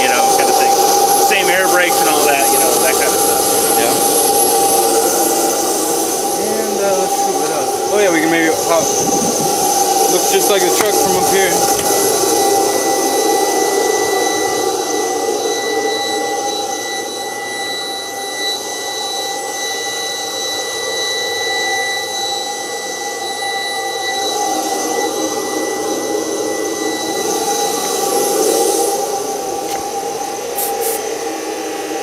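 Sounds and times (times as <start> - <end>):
turbine high-pitched whine: 0.0 - 32.0
rush of air: 6.3 - 10.4.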